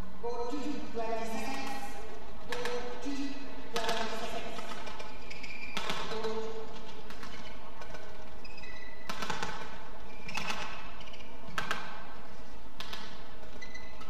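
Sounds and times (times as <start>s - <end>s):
rackets striking shuttlecock: 2.5s - 3.0s, 3.7s - 8.2s, 9.0s - 12.1s
shoes squeaking on court: 3.8s - 14.0s.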